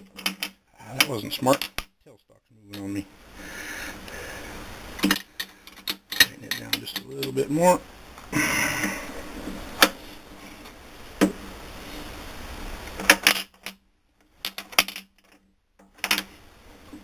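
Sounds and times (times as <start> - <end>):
metallic clicks and clinks: 5.0 - 7.4.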